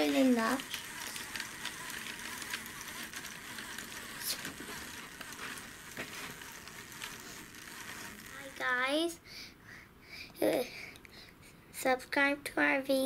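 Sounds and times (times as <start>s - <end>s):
faint gear clicks: 0.0s - 8.6s
small electric motor whirring: 0.0s - 9.2s.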